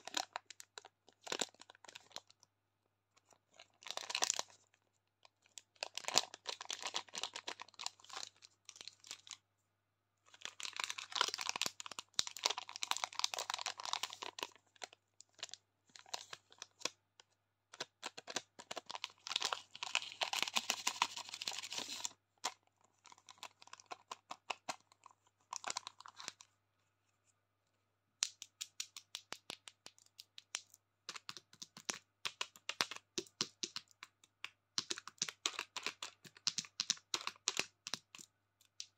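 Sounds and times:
plastic wrappers crinkling: 3.8 - 4.6, 10.4 - 16.9, 18.0 - 26.4
fingernails tapping on wrappers: 28.2 - 38.9.

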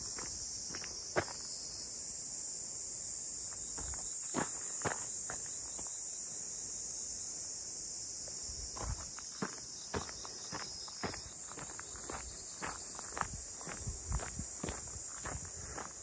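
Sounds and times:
footsteps on gravel: 0.0 - 1.4, 3.5 - 6.0, 8.8 - 16.0
high-pitched insect chorus: 0.0 - 16.0.

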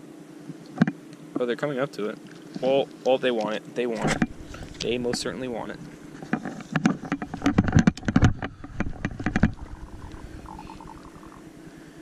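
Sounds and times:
fishing gear knocking on wooden planks: 6.2 - 10.0.

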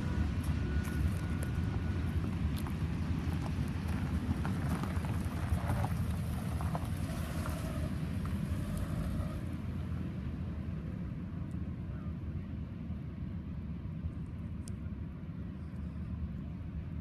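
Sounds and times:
wind rumbling on microphone: 0.0 - 10.1
freight train rumble: 0.0 - 17.0.

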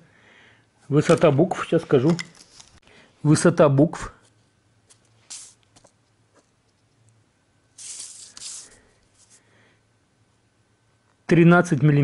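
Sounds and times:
paper rustling: 7.8 - 9.4.

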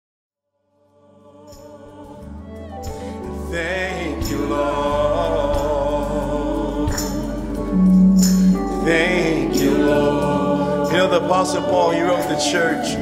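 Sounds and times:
gospel music chords: 0.8 - 13.0
person singing: 3.1 - 13.0.

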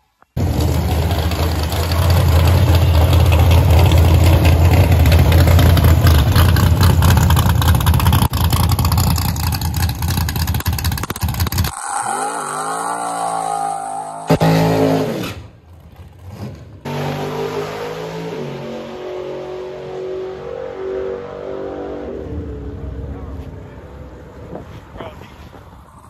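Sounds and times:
car engine idling lumpy: 0.4 - 11.7
car engine revving: 0.4 - 24.8.

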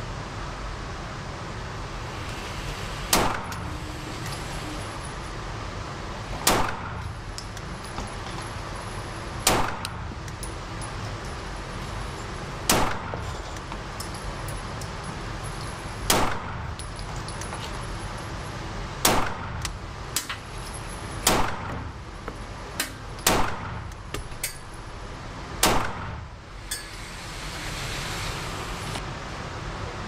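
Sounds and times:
pistol shots: 6.4 - 6.9, 9.5 - 9.8, 12.7 - 13.1, 16.1 - 16.5, 19.0 - 19.5, 21.2 - 21.8, 23.2 - 23.8, 25.6 - 26.2.

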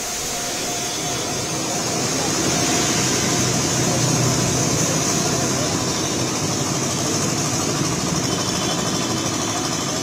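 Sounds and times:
rain hissing: 0.0 - 4.0
heavy vehicle engine: 0.0 - 10.0
wet road noise: 0.9 - 6.7.

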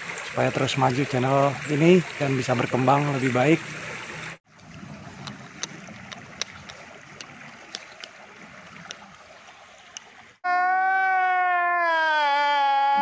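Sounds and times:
stream running over stones: 0.0 - 10.4
drawn-out human voice: 10.5 - 13.0.

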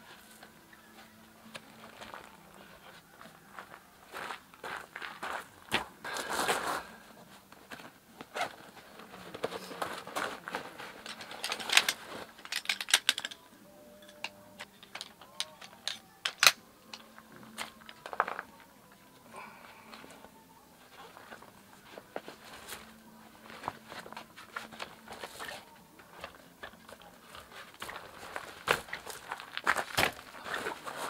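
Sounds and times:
metal poles clicking and knocking: 10.9 - 13.4, 14.0 - 18.2.

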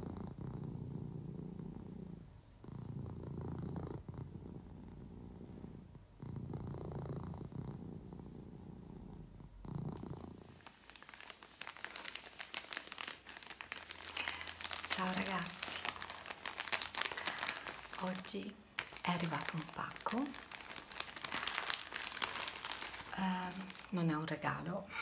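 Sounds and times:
plastic mailing bag crinkling: 10.4 - 24.7.

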